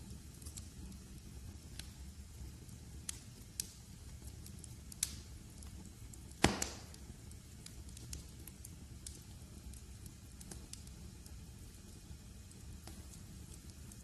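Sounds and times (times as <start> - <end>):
wood fire crackling: 0.0 - 14.0
loud fire pop: 6.4 - 7.0.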